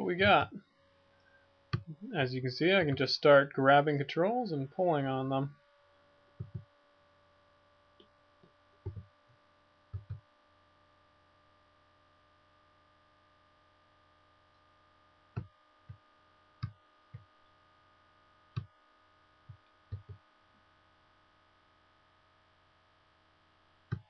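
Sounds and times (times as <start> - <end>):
electrical hum: 0.0 - 24.0.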